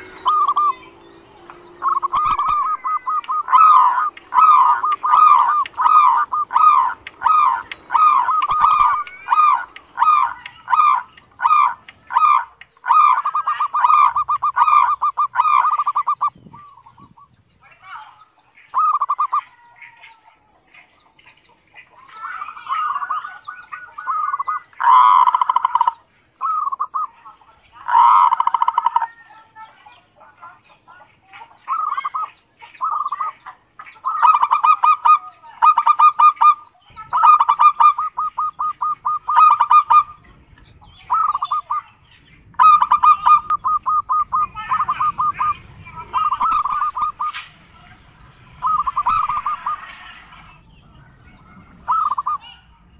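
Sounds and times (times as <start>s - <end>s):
dove rattling coos: 1.8s - 16.4s, 24.1s - 27.0s.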